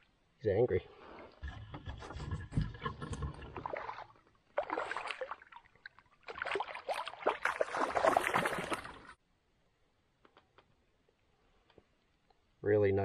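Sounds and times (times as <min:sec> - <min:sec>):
fish splashing in water: 0:02.8 - 0:09.2.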